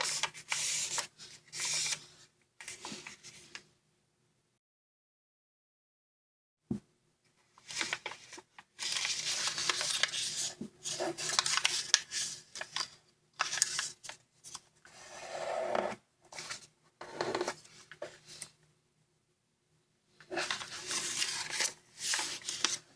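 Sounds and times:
paper rustling and crinkling: 0.0 - 3.7, 7.5 - 14.7, 20.3 - 22.9.

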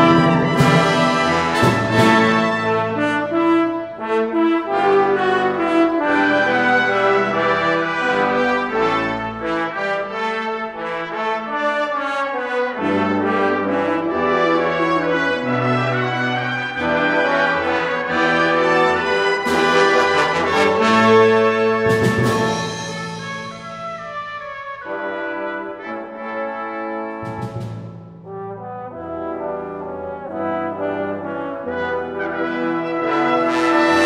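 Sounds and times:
sharp percussion strikes: 0.0 - 2.6, 21.9 - 24.1
brass ensemble playing: 0.0 - 34.0.

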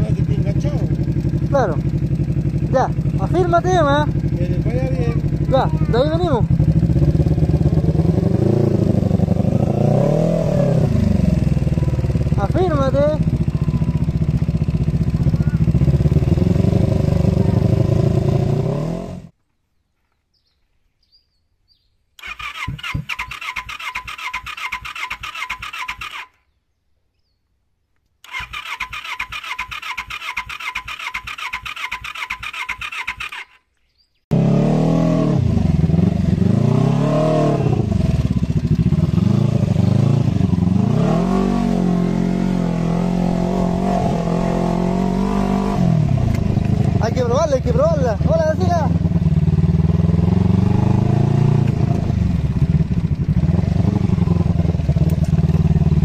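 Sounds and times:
motorcycle engine revving: 0.0 - 19.4, 22.2 - 26.4, 28.2 - 33.6, 34.3 - 56.0
electric starter cranking: 28.2 - 33.6.

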